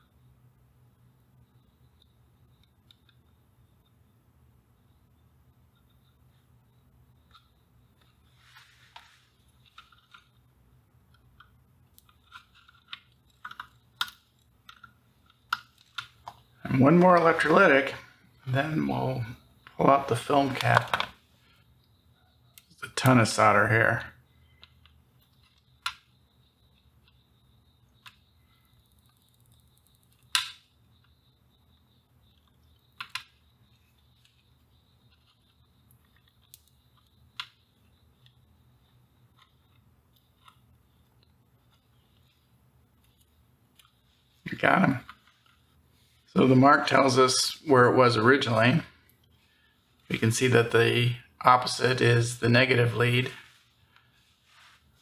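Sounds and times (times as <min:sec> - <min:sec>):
sharp clicks: 0:27.9 - 0:31.2.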